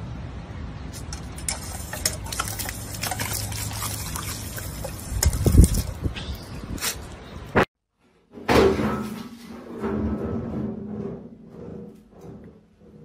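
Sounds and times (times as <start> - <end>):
water fountain spraying: 1.0 - 6.2.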